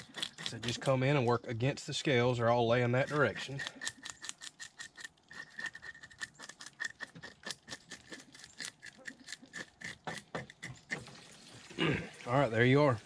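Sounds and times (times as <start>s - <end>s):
fish scaler scraping scales: 0.0s - 1.3s, 2.7s - 11.3s.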